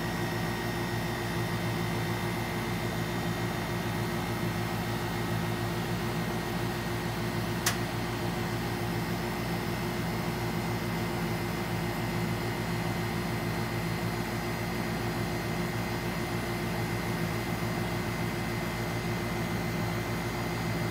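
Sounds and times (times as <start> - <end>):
steady mechanical hum: 0.0 - 20.9
sharp click: 7.6 - 7.8.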